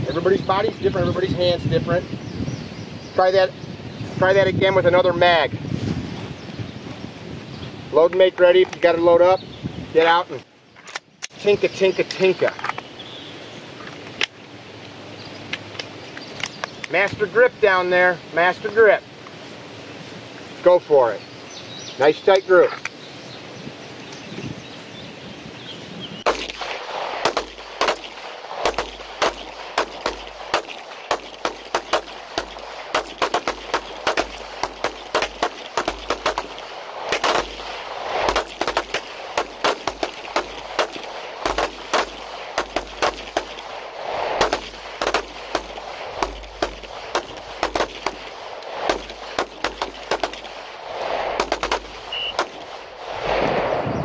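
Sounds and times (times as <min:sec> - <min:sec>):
pistol shots: 0:26.2 - 0:53.0.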